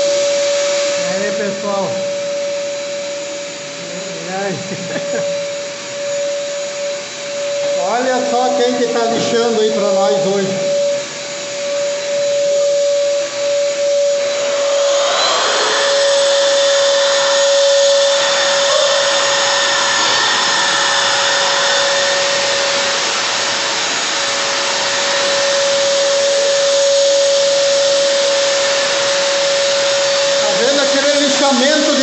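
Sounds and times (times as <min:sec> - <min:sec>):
drywall sander whining: 0:00.0 - 0:32.0
hissy sanding sound: 0:13.8 - 0:32.0.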